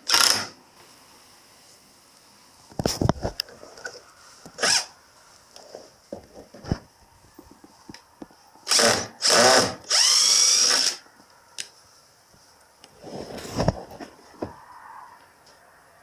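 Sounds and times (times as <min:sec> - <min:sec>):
cordless drill driving screw: 0:00.0 - 0:00.6, 0:04.6 - 0:04.9, 0:08.6 - 0:11.0.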